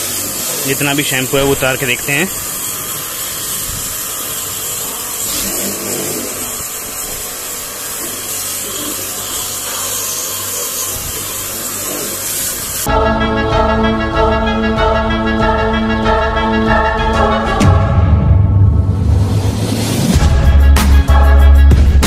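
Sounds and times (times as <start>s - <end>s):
water jet hissing: 0.0s - 12.9s
pressure washer motor humming: 0.0s - 17.9s
music: 12.9s - 22.0s.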